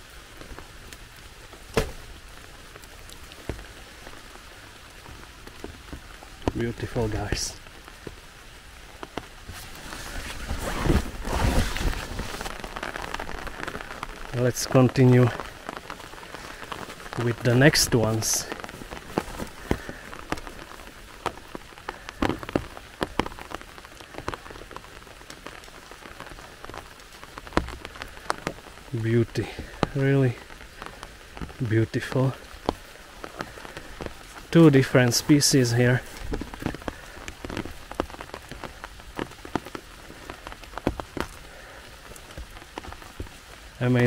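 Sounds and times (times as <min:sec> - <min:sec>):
rain drops ticking: 0:00.0 - 0:44.0.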